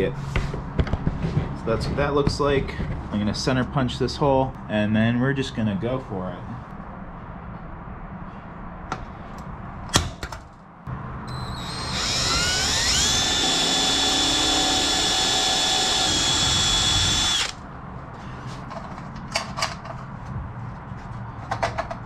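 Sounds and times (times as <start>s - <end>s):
drill whining: 11.3s - 17.6s.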